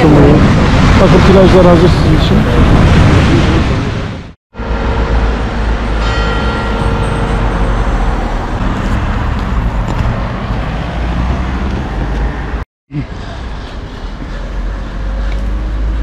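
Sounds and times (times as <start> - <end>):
dense rushing noise: 0.0 - 12.6.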